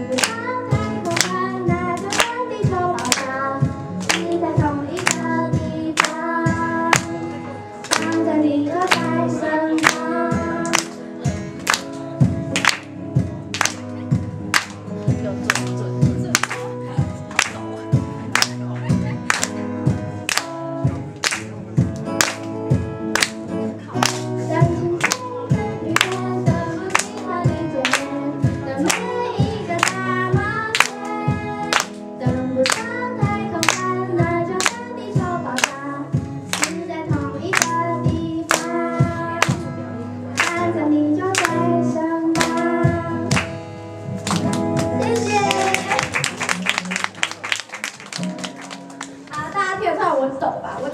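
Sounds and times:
woman singing into a microphone: 0.0s - 11.4s, 23.9s - 43.6s
strummed acoustic guitar: 0.0s - 49.6s
sharp hand claps: 0.1s - 3.4s, 4.0s - 4.4s, 5.0s - 6.3s, 6.9s - 7.2s, 7.8s - 24.4s, 25.0s - 28.2s, 28.8s - 29.1s, 29.8s - 32.0s, 32.6s - 34.9s, 35.5s - 35.8s, 36.5s - 36.8s, 37.5s - 37.8s, 38.5s - 38.8s, 40.3s - 40.7s, 41.3s - 41.6s, 42.3s - 43.6s, 44.2s - 49.3s.

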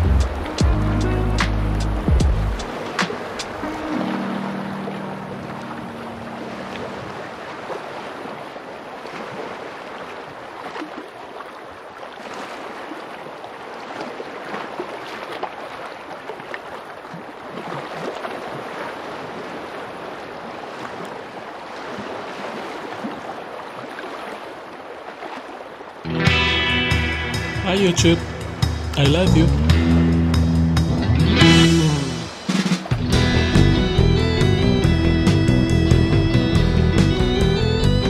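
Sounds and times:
background music: 0.0s - 6.6s, 26.1s - 38.0s
wind: 0.0s - 26.3s
lake water lapping: 0.0s - 38.0s
small splashes: 2.5s - 26.6s.

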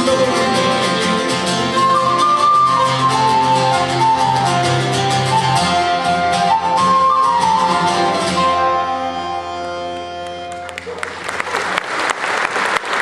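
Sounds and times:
folk band playing: 0.0s - 11.4s
applause: 10.2s - 13.0s.

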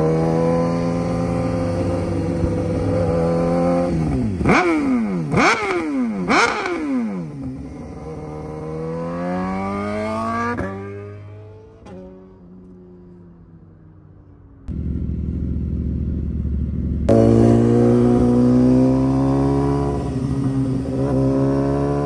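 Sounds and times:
motorcycle engine revving: 0.0s - 22.0s
motorcycle engine idling: 14.7s - 17.7s.

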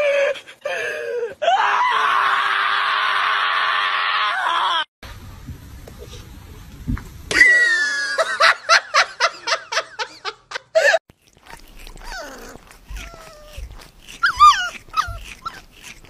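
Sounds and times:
dog yelping: 11.5s - 16.0s
puppies whining and squeaking: 11.5s - 16.0s.

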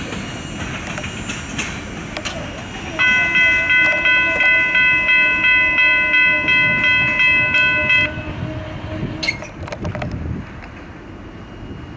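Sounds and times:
crossing warning bell ringing: 2.9s - 9.6s.

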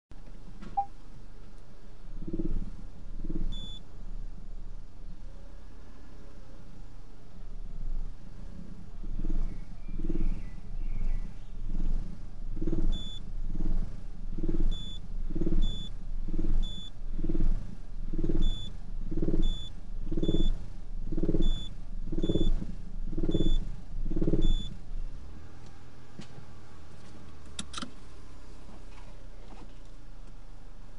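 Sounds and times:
low steady hum: 0.1s - 30.9s
pulsing faulty car exhaust: 2.1s - 4.2s, 7.7s - 25.2s.

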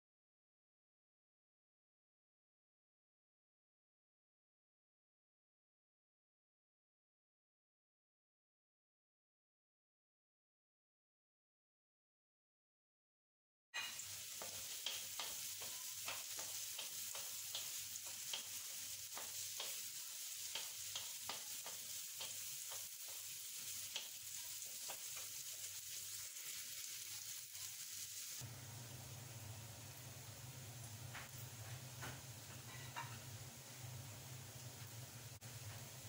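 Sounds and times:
wooden spatula scraping a pan: 13.8s - 26.9s
vegetables sizzling in a wok: 13.8s - 36.0s.

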